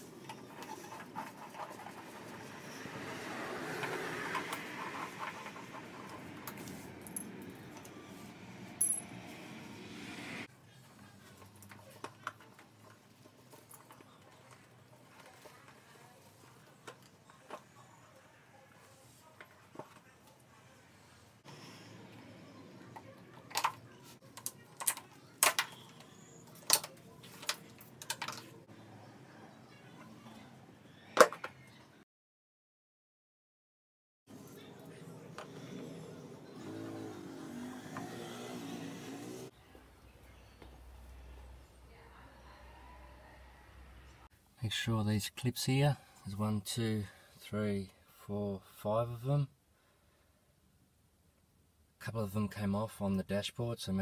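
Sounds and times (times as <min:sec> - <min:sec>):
metal parts set on tiled floor: 0:03.8 - 0:09.2, 0:22.9 - 0:28.6.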